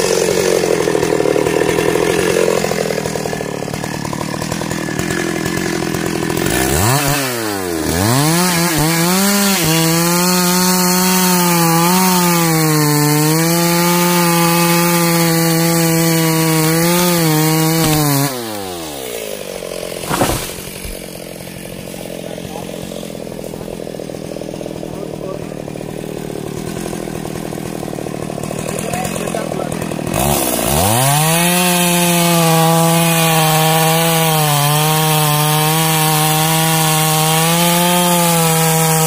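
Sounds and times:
chainsaw revving and cutting: 0.0s - 39.0s
tree hitting ground thump: 16.7s - 21.8s.

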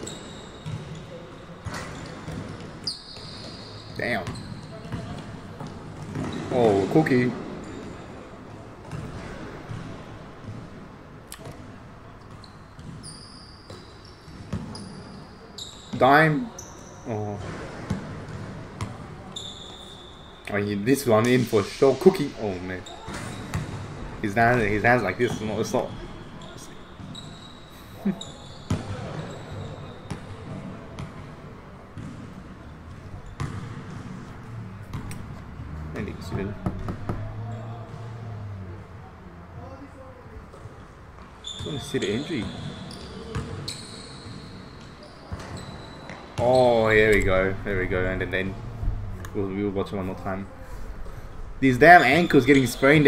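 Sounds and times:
basketball bouncing indoors: 0.0s - 16.0s, 16.6s - 19.8s, 22.8s - 39.7s, 40.4s - 46.4s
sneakers squeaking: 0.0s - 53.0s
basketball bouncing: 0.1s - 1.0s, 4.2s - 6.5s, 23.1s - 24.0s, 32.0s - 38.1s, 43.3s - 43.6s.

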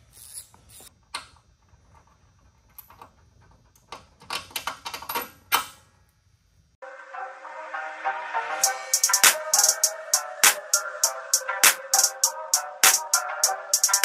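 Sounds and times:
music: 6.8s - 14.0s.

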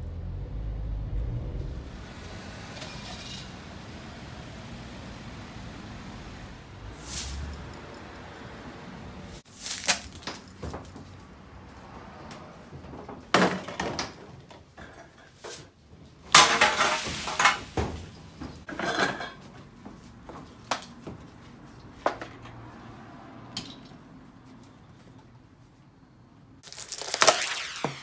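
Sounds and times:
cans and bottles clattering: 12.9s - 15.7s, 16.3s - 19.6s
cans rattling spill: 16.3s - 18.1s, 26.6s - 28.0s.

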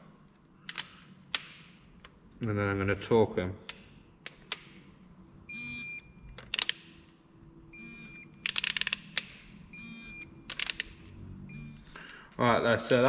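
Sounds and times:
electronic beep: 5.5s - 6.2s, 7.7s - 8.4s, 9.7s - 10.5s, 11.4s - 11.9s.

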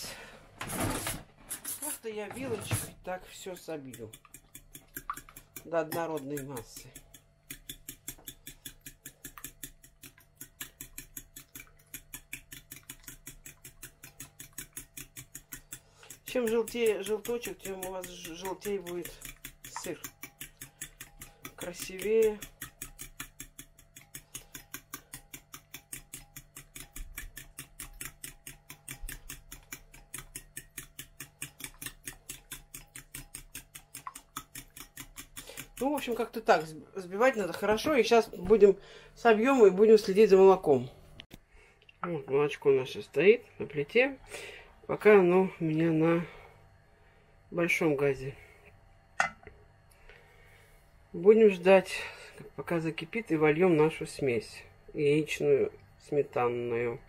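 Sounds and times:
fork beating in glass bowl: 3.3s - 36.4s.

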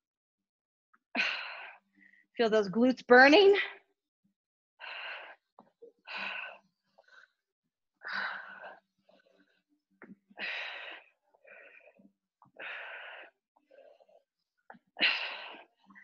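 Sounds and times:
person breathing hard: 4.8s - 7.4s, 8.0s - 9.6s, 10.4s - 14.3s.

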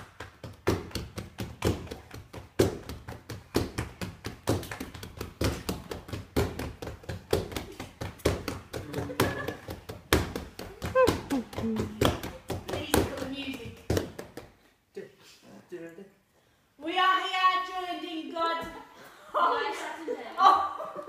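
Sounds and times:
hands clapping a rhythm: 0.0s - 14.6s.

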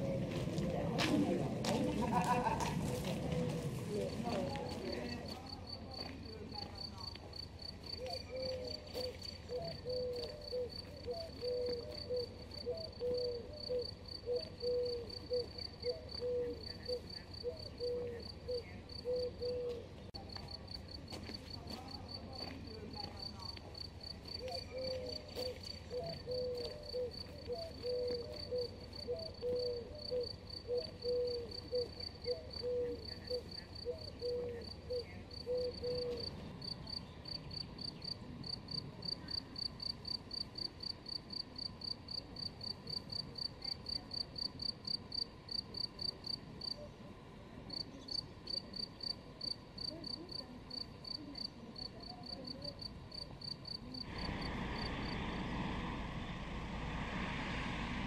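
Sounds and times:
lower insect call: 4.5s - 58.0s
insect chirping: 47.7s - 55.2s
broad rushing noise: 54.1s - 58.0s.

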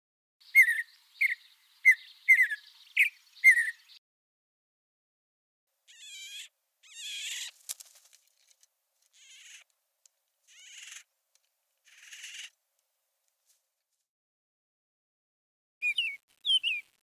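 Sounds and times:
animal calling: 5.9s - 7.6s, 9.1s - 9.7s, 10.5s - 11.1s, 11.8s - 12.6s.

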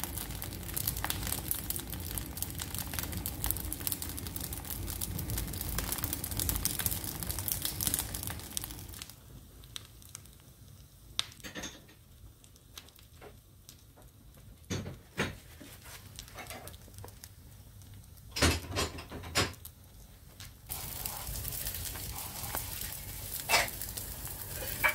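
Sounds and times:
sharp pops of fire: 0.0s - 15.3s, 20.4s - 24.9s
wood fire crackling: 0.0s - 24.9s.

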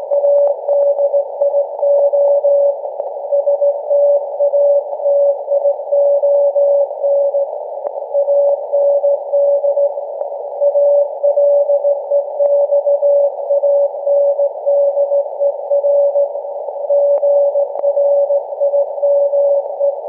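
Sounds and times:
faint static clicks: 0.0s - 20.0s
radio receiver hiss: 0.0s - 20.0s
morse code whistle tone: 3.3s - 7.4s, 10.6s - 16.3s, 16.9s - 20.0s.

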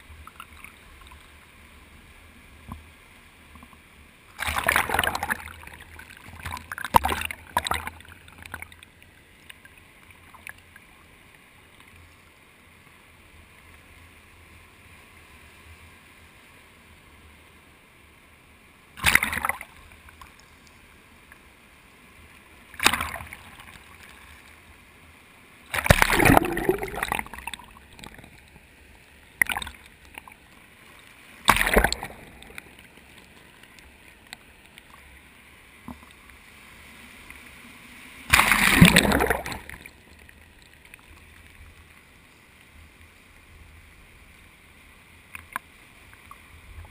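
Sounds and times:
faint wash of the sea: 0.0s - 46.9s
muffled water splashes: 2.5s - 11.8s, 18.9s - 20.7s, 22.5s - 24.9s, 25.6s - 43.2s.

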